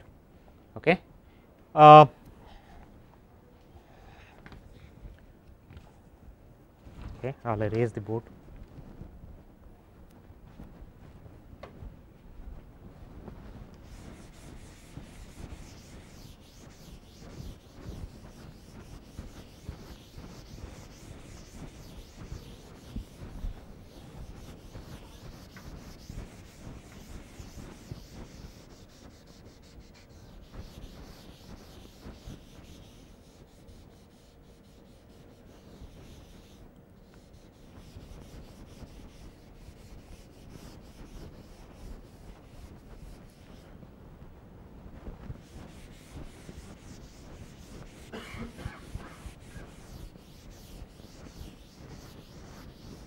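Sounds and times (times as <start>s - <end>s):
duster rubbing on a blackboard: 13.2s - 43.8s, 45.0s - 53.0s.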